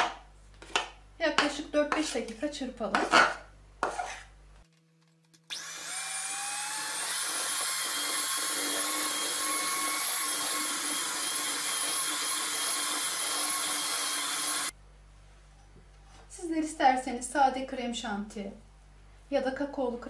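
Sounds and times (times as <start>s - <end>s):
electric hand mixer whirring: 5.4s - 14.7s.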